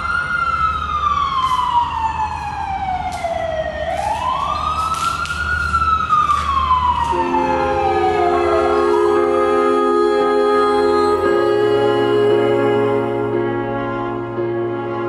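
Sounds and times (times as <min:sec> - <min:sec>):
emergency siren wailing: 0:00.0 - 0:15.0
soft music: 0:07.1 - 0:15.0.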